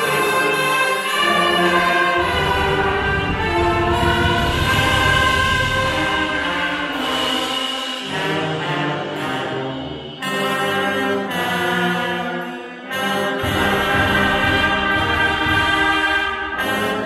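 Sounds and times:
brass band playing held chords: 0:00.0 - 0:17.0.

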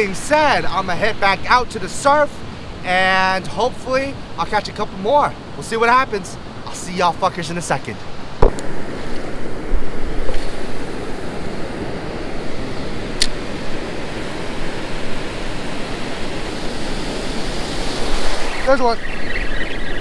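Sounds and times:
ocean waves breaking: 0:00.0 - 0:20.0
sharp click: 0:13.2 - 0:13.4.

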